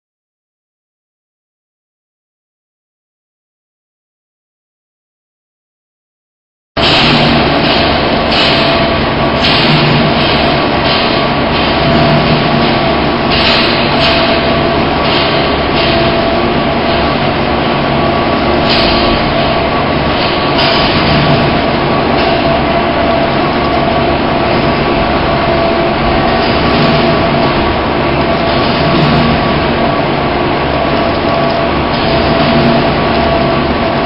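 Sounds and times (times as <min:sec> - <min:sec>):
machinery drone: 0:06.8 - 0:34.0
steady tones: 0:06.8 - 0:34.0.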